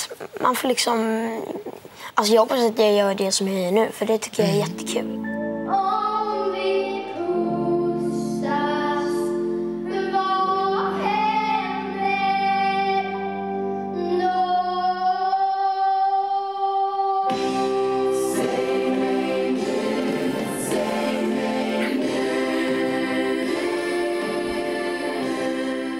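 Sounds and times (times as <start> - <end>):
girl singing: 4.0 - 18.6
backing track with sustained chords: 4.4 - 25.9
chorus voices: 4.4 - 25.9.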